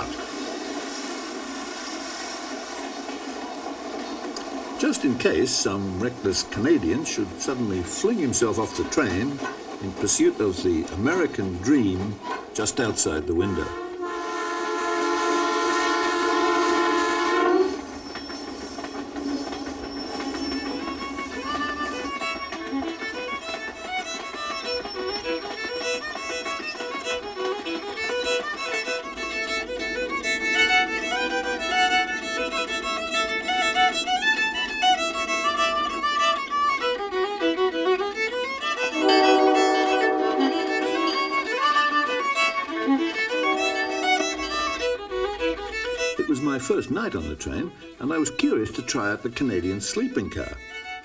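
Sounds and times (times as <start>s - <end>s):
bowed violin melody: 12.8s - 18.0s, 18.8s - 51.0s.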